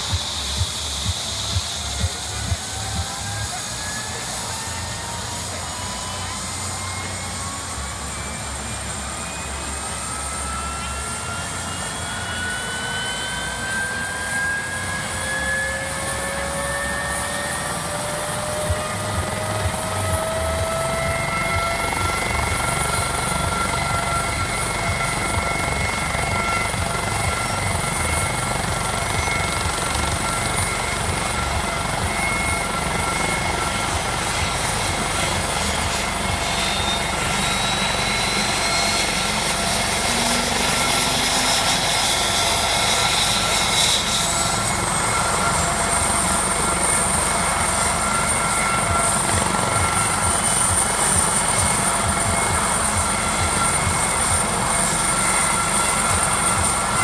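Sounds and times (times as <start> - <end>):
helicopter rotor rumble: 0.0 - 57.0
turbine engine whine: 0.0 - 57.0.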